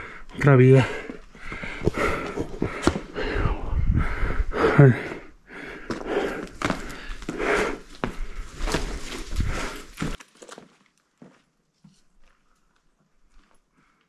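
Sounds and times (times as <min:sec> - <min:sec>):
person breathing: 0:00.0 - 0:10.2
footsteps on loose ground: 0:00.5 - 0:04.3, 0:05.0 - 0:14.0.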